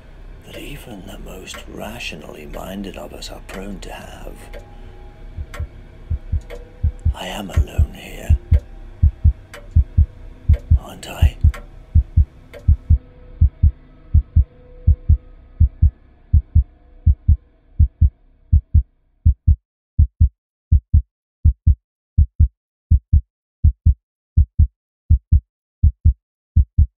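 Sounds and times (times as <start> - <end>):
faint low drone: 0.0 - 19.0
heartbeat thumps: 5.3 - 27.0.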